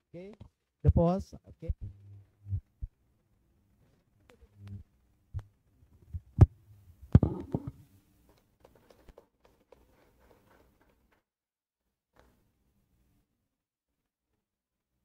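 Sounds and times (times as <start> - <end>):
microphone handling thumps: 1.6 - 3.0, 4.6 - 7.8.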